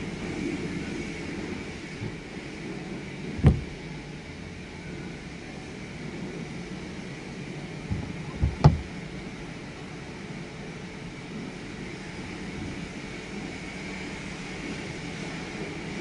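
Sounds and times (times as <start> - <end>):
steady hum and hiss: 0.0 - 16.0
sharp thump: 3.4 - 3.7, 7.9 - 8.9
small knock: 7.9 - 8.9.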